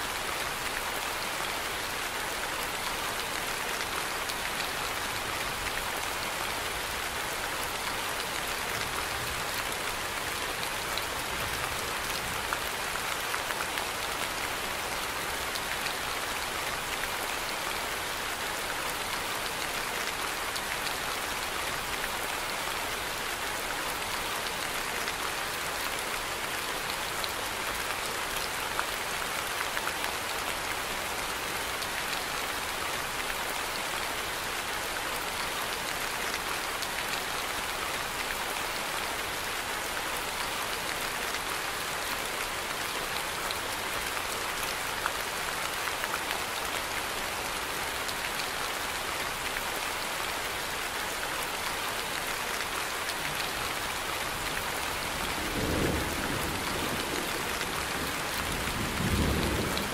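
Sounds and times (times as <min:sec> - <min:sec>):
rain falling on leaves: 0:00.0 - 0:59.9.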